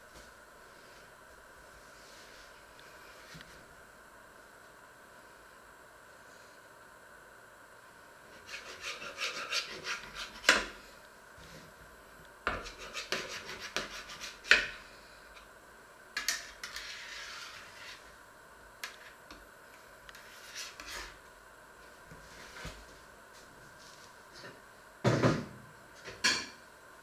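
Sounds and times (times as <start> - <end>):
knife sawing through cake: 8.4 - 10.5, 12.6 - 14.5.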